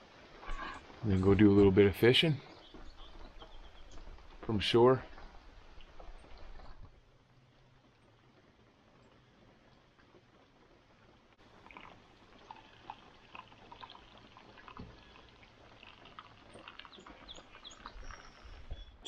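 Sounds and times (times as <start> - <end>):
coffee trickling into mug: 11.5 - 18.8.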